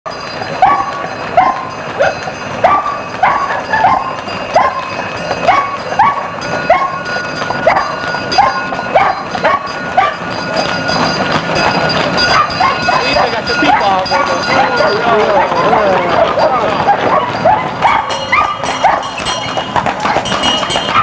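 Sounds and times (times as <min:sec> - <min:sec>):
dog barking: 0:00.6 - 0:07.0, 0:07.6 - 0:10.2, 0:12.3 - 0:19.2.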